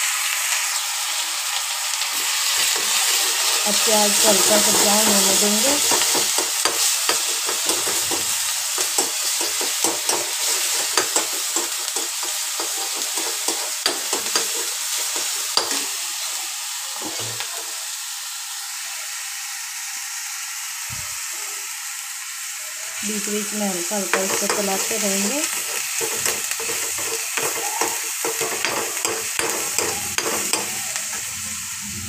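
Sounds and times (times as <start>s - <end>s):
onion paste sizzling in oil: 0.0s - 32.0s
metal spoon scraping pan: 2.6s - 15.9s, 24.1s - 31.4s.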